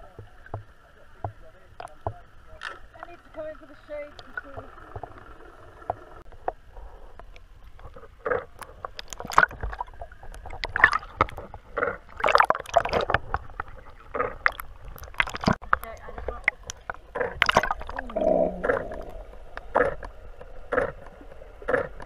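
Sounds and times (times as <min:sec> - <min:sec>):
water sloshing and splashing: 0:07.6 - 0:22.0.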